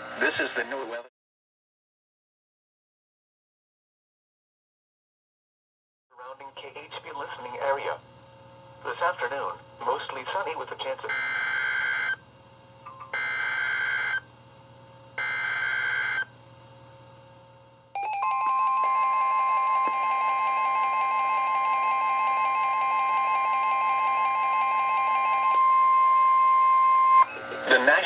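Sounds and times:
steady warning alarm tone: 11.0s - 12.2s, 12.9s - 14.3s, 15.2s - 16.3s, 18.0s - 27.6s.

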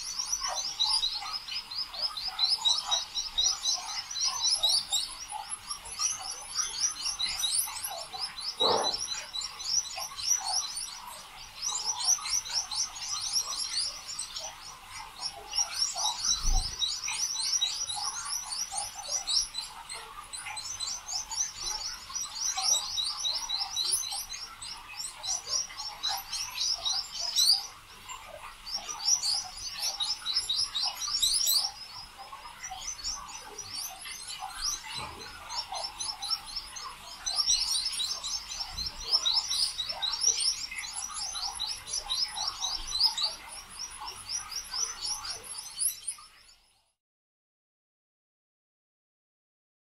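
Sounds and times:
small birds chirping: 0.0s - 47.0s.

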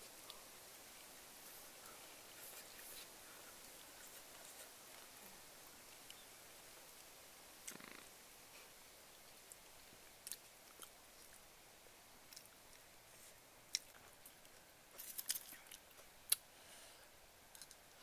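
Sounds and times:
person chewing and mouth smacks: 13.7s - 16.4s.

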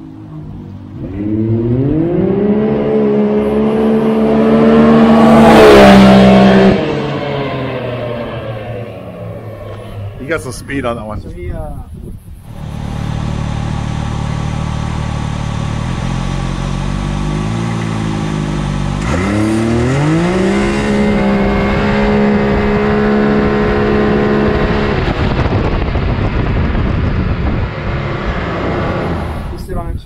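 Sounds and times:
turbocharged engine revving: 0.9s - 11.0s, 12.4s - 29.9s
rushing noise while coasting: 7.7s - 30.0s.

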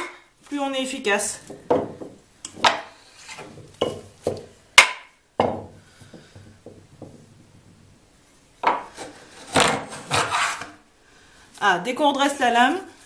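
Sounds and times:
mallet knocking on wood: 3.8s - 7.2s
hand plane rasping along wood: 9.0s - 10.7s.

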